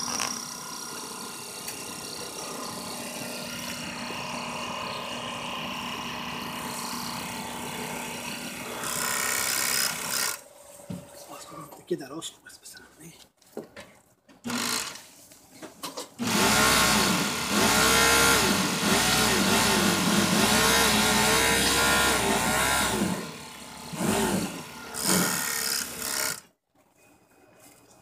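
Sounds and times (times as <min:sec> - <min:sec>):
sewing machine running fast: 0:16.2 - 0:26.4.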